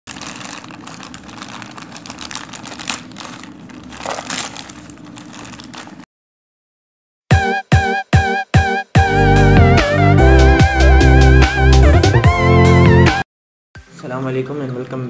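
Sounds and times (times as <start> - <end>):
plastic mailer bag crinkling: 0.1 - 6.1.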